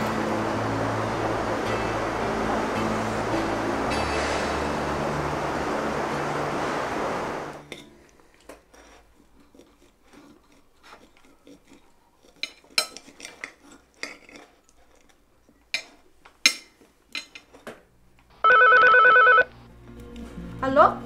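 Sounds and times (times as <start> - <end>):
cutlery clinking on plates: 12.3 - 17.8.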